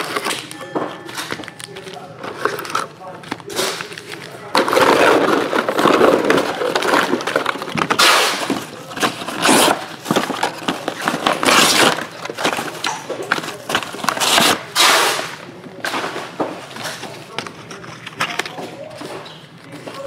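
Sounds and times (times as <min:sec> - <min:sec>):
packaging rustling and tearing: 0:01.1 - 0:15.4.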